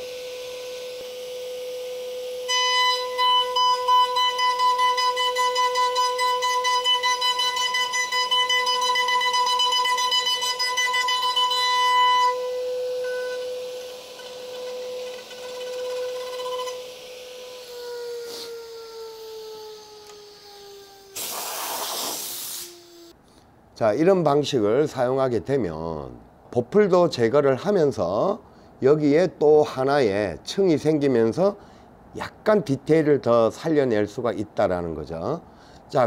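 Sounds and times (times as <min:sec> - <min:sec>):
router spindle whining: 0:00.0 - 0:21.2
end mill cutting wood: 0:12.3 - 0:21.2.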